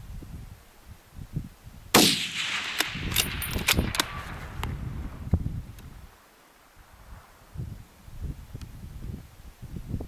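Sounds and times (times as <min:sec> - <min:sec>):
rifle shot with echo: 0:01.9 - 0:05.0
sharp metallic clicks: 0:02.2 - 0:04.7.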